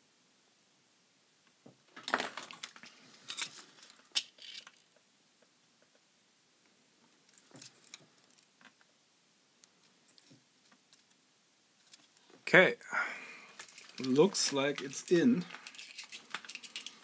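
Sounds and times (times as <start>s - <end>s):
small clicks taps and scrapes: 15.5s - 17.0s.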